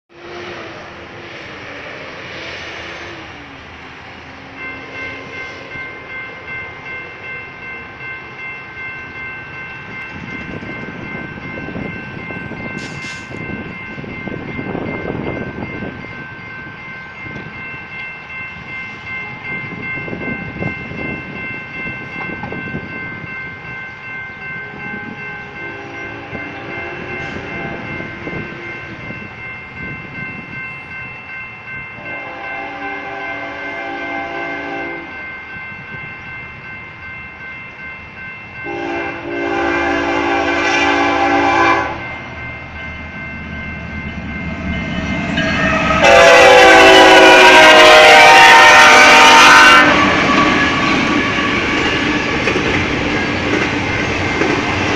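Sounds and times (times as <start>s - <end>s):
crossing warning bell ringing: 0.1s - 54.9s.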